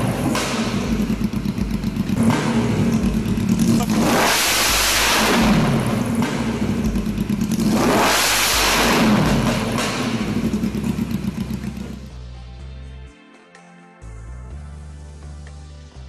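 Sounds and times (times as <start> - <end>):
motorcycle engine revving: 0.0 - 12.1.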